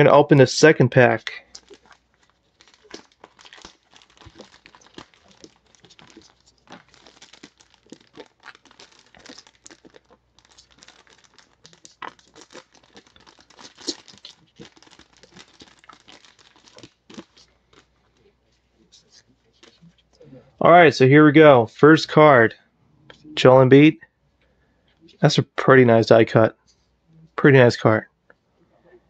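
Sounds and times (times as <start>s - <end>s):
plastic bag crinkling and tearing: 1.2s - 20.1s.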